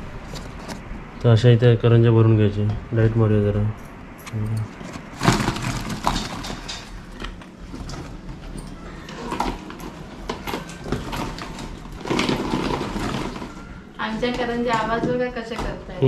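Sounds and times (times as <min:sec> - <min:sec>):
pastry rustling against plastic: 0:04.8 - 0:14.6
pastries knocking into plastic tubs: 0:05.0 - 0:13.7.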